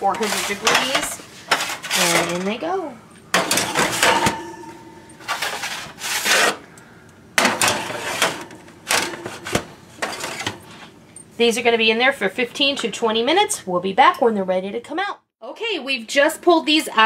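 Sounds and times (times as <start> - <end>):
baking sheets scraping on rack: 0.0 - 2.7, 3.4 - 6.7, 7.4 - 11.0.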